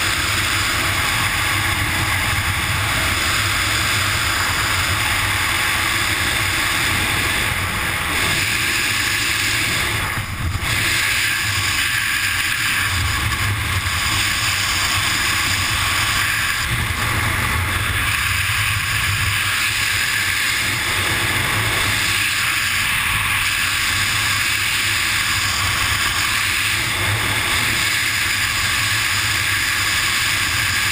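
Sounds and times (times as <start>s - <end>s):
freefall wind buffeting microphone: 0.0s - 15.0s.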